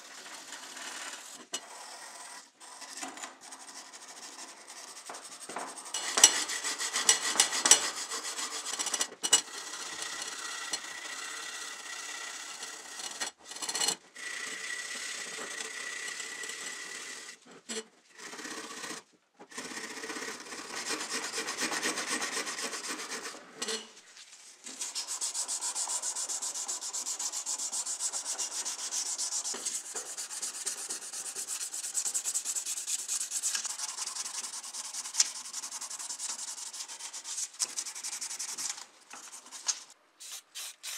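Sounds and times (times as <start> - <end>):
sanding pad rubbing metal: 3.4 - 9.0, 20.6 - 23.4, 24.8 - 40.9
wire brush scrubbing metal: 24.7 - 40.9.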